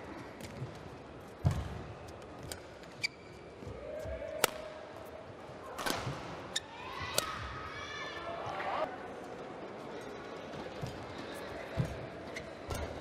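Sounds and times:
low crowd murmur: 3.7s - 13.0s
rackets striking shuttlecock: 7.1s - 7.4s.

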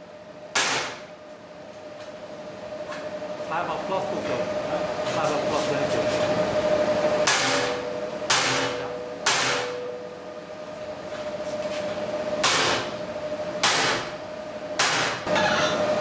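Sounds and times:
sledgehammer striking steel: 7.3s - 10.0s, 12.4s - 12.9s.

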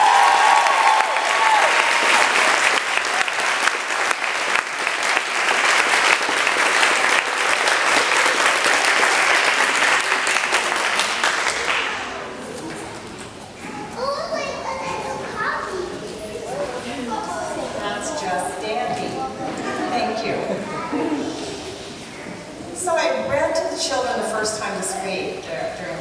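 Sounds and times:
audience clapping: 0.0s - 12.4s.

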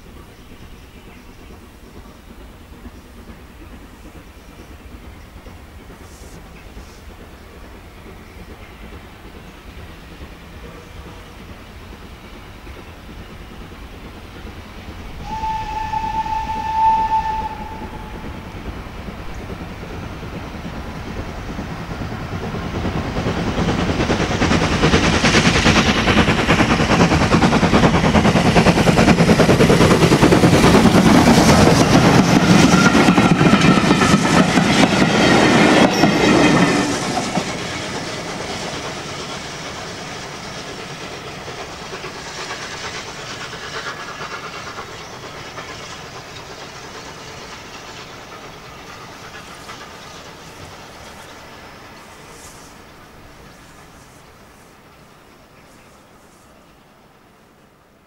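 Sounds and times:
train clatter: 0.0s - 56.7s
steam locomotive exhaust beat: 0.0s - 57.6s
steam locomotive whistle: 15.2s - 18.6s.

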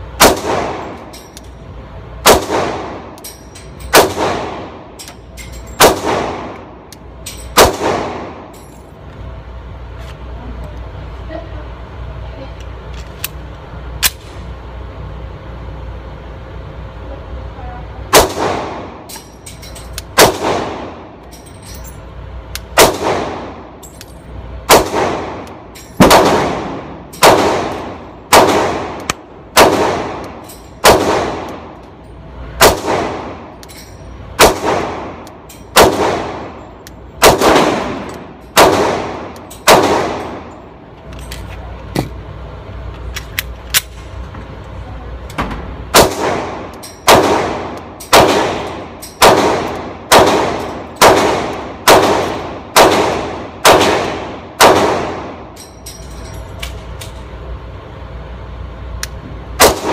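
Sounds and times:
pistol shots echoing: 0.2s - 1.0s, 2.2s - 3.2s, 3.9s - 4.8s, 5.8s - 6.8s, 7.5s - 8.5s, 18.1s - 19.1s, 20.1s - 21.0s, 22.7s - 23.7s, 24.7s - 31.8s, 32.6s - 33.5s, 34.4s - 36.6s, 37.2s - 40.5s, 45.9s - 55.5s, 59.6s - 59.9s
pistol handling clicks: 19.1s - 20.3s, 22.5s - 22.9s.

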